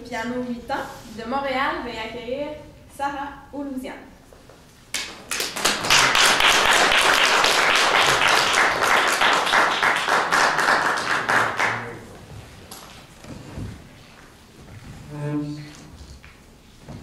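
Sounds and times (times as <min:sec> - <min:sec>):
audience applauding: 0:05.0 - 0:12.2.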